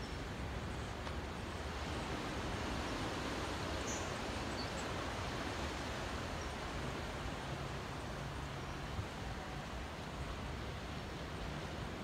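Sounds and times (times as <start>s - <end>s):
distant ocean surf: 0.0s - 12.0s
wind: 0.0s - 12.0s.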